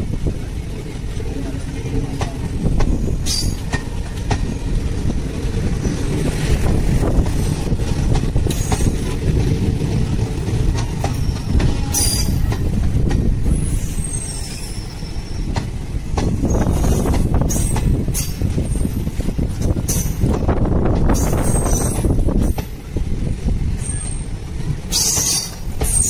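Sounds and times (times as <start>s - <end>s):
train wheels rumbling on rails: 0.0s - 26.0s
faint high squeal: 13.6s - 15.5s, 24.9s - 26.0s.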